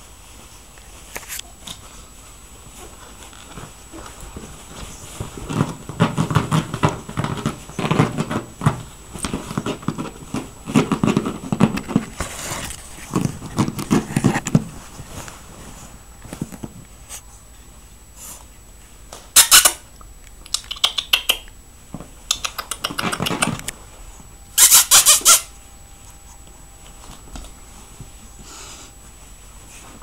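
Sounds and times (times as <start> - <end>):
puppies scuffling in fabric bag: 0.0 - 17.2.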